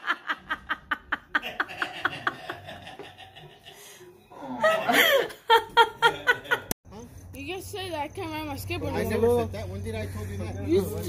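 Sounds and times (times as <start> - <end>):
woman laughing hard: 0.0 - 3.6, 4.6 - 6.6.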